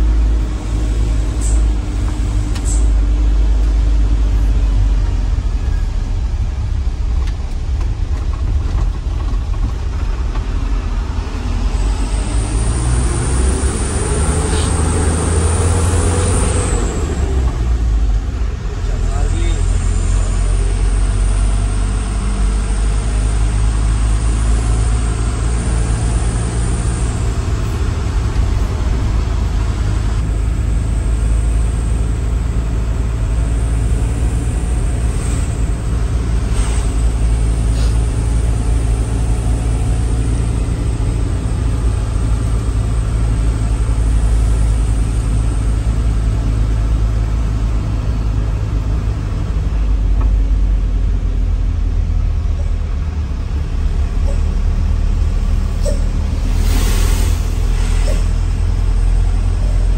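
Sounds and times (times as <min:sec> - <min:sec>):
road noise: 0:00.0 - 0:59.9
truck engine drone from inside cab: 0:00.0 - 0:59.9.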